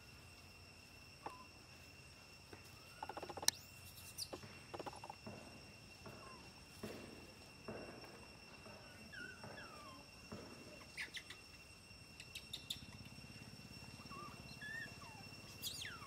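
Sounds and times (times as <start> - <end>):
high two-tone insect drone: 0.0 - 16.0
monkey squeaky calls: 10.8 - 11.5, 14.0 - 16.0.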